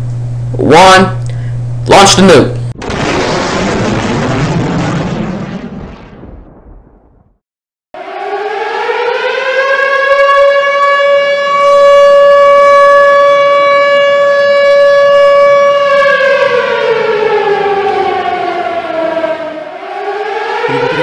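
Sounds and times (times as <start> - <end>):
civil defense siren wailing: 8.0 - 21.0.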